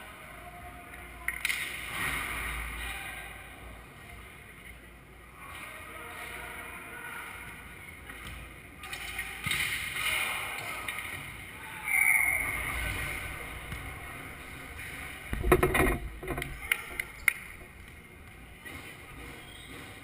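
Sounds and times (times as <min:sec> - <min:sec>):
steady background hum: 0:12.4 - 0:20.0.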